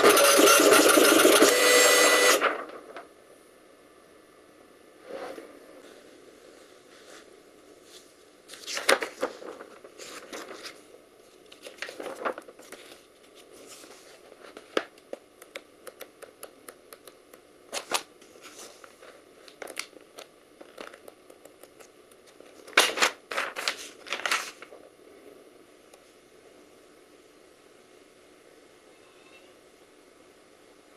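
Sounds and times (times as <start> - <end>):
paper rustling and crinkling: 7.8 - 15.0, 17.7 - 21.1, 22.2 - 24.9.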